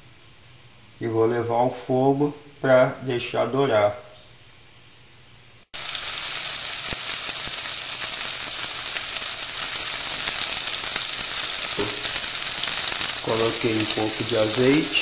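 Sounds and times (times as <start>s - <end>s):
oil sizzling in a pot: 5.7s - 15.0s
small crackles: 5.8s - 15.0s.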